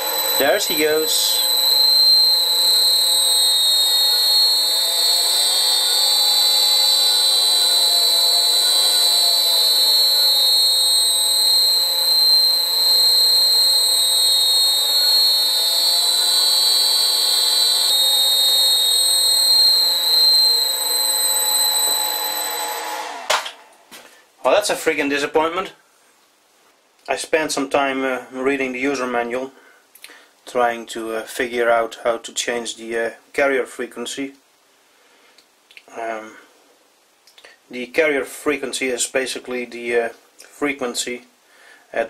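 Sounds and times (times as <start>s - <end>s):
motor tones rising and falling: 0.0s - 23.8s
high-pitched drive whine: 0.0s - 24.0s.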